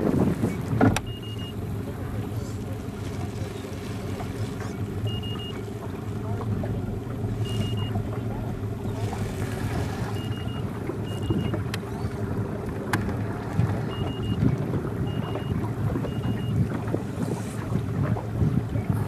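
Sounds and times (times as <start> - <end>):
lapping water: 0.0 - 19.0
steady low rumble: 0.0 - 19.0
wind: 0.0 - 19.0
short high beeps: 1.0 - 1.6, 5.0 - 5.6, 7.4 - 8.0, 10.1 - 11.6, 13.9 - 16.6.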